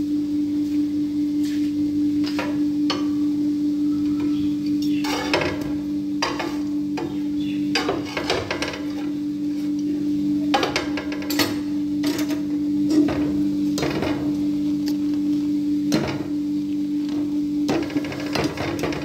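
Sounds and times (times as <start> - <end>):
steady low hum: 0.0 - 19.0
crackles and clicks: 13.8 - 19.0.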